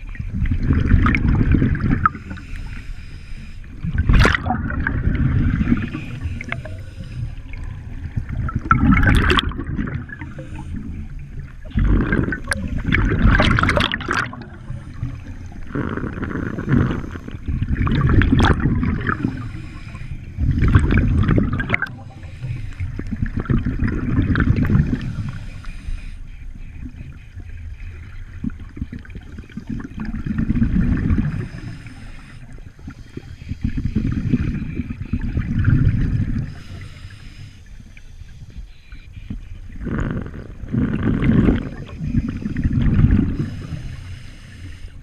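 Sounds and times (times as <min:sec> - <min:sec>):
exhaled bubbles gurgling: 0:00.0 - 0:38.6, 0:39.2 - 0:45.0
scuba regulator breathing: 0:02.0 - 0:04.0, 0:05.0 - 0:08.2, 0:10.0 - 0:17.6, 0:18.9 - 0:23.4, 0:24.8 - 0:26.7, 0:31.0 - 0:35.2, 0:36.2 - 0:38.7, 0:39.7 - 0:45.0.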